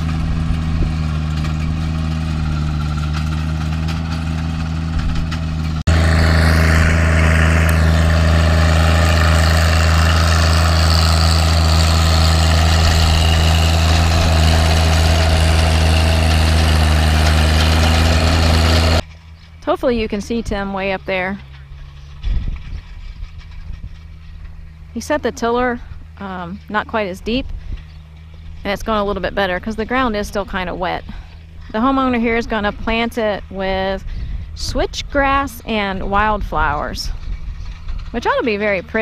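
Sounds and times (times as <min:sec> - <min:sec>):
rotary tiller churning: 0:00.0 - 0:19.6
tractor diesel engine running: 0:00.0 - 0:39.0.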